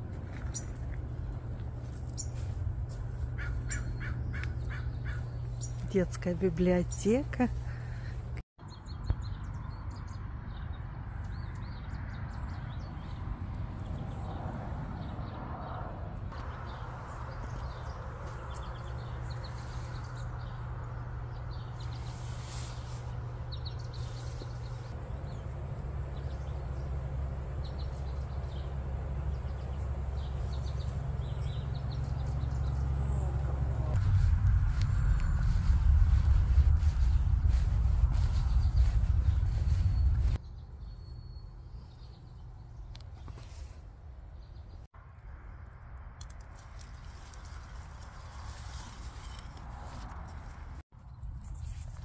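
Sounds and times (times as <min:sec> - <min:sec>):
small birds chirping: 0:00.3 - 0:01.0, 0:01.8 - 0:15.4, 0:16.3 - 0:44.9
low steady rumble: 0:16.0 - 0:43.0.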